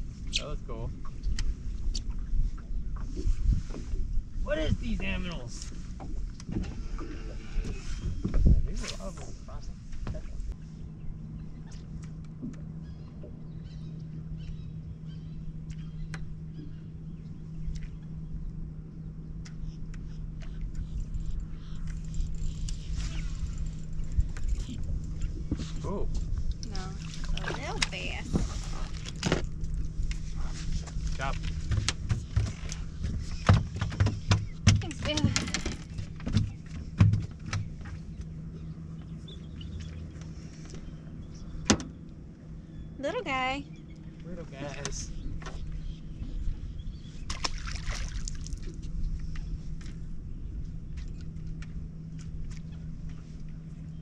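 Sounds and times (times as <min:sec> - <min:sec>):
boat motor humming: 0:00.0 - 0:54.0
birds chirping: 0:09.5 - 0:26.1, 0:29.6 - 0:47.7.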